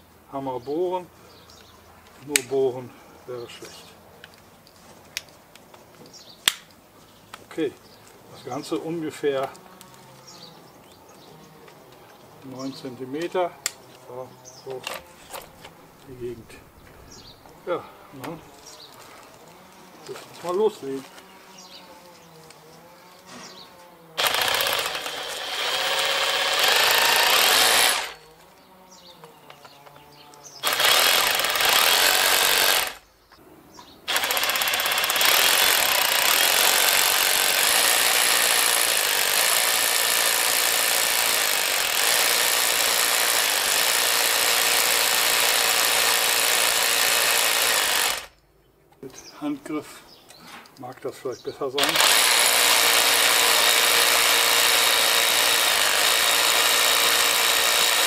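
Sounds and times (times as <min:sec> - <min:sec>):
hammer drill drilling: 0:24.2 - 0:28.2, 0:30.6 - 0:33.0, 0:34.1 - 0:48.3, 0:51.8 - 0:58.0.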